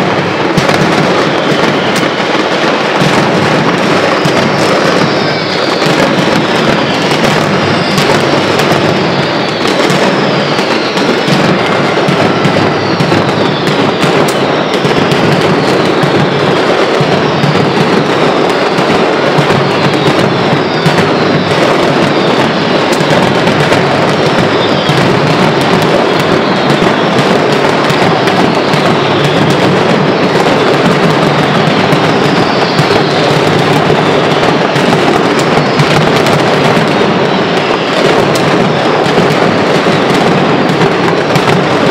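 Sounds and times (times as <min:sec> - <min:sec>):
firecrackers crackling: 0:00.0 - 0:41.9
falling whistles: 0:01.2 - 0:02.4, 0:04.1 - 0:33.9.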